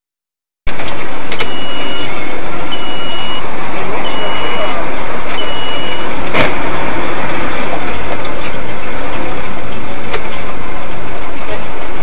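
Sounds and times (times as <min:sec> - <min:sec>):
vehicle engine and road noise: 0:00.7 - 0:12.0
short high beep: 0:01.4 - 0:02.1, 0:02.7 - 0:03.4, 0:04.0 - 0:04.8, 0:05.4 - 0:06.1.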